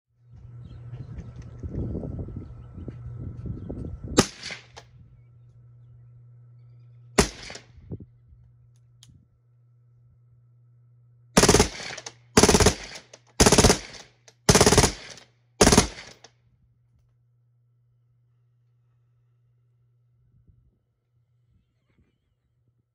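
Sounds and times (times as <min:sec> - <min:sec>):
suppressed rifle shots: 0:04.2 - 0:04.9, 0:07.2 - 0:07.7, 0:11.4 - 0:16.3.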